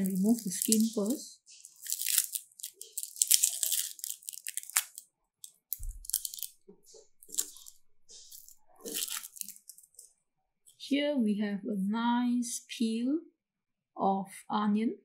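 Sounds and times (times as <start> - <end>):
onion skin crackling and tearing: 0.0 - 6.6, 7.2 - 10.1.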